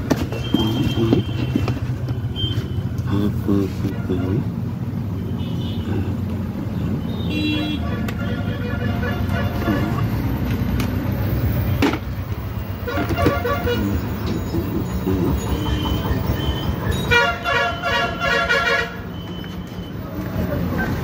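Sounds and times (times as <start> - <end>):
road traffic rumble: 0.0 - 21.0
vehicle horns honking: 0.2 - 3.0, 5.2 - 6.2, 6.8 - 10.4, 12.6 - 19.3.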